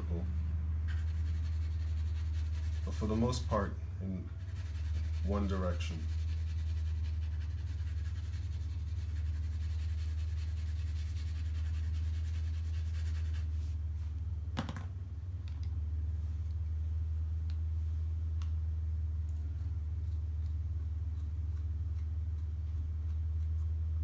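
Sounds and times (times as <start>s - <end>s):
steady low hum: 0.0s - 24.0s
pencil scratching on paper: 0.9s - 3.6s, 4.4s - 13.6s.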